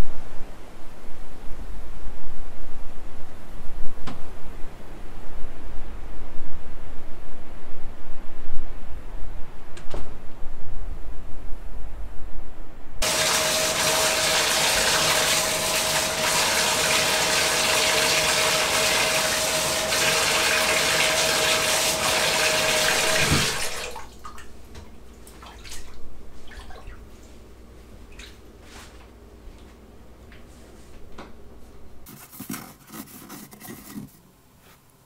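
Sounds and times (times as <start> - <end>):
tap water running into tub: 13.0 - 27.0.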